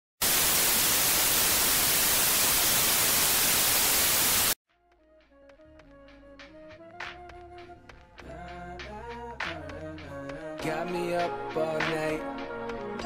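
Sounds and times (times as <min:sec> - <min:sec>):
tv static hiss: 0:00.2 - 0:04.6.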